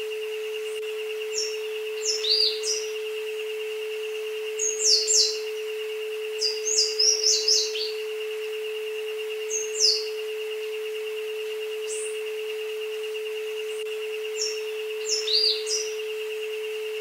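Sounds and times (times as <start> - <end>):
higher pulsing tone: 0.0 - 17.0
birds chirping: 0.3 - 17.0.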